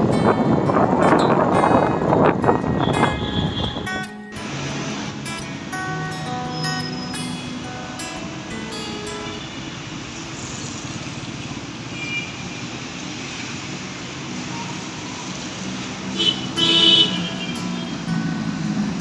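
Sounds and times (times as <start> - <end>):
road traffic rumble and hiss: 0.0 - 19.0
vehicle horn blaring: 2.6 - 4.1, 16.1 - 18.1.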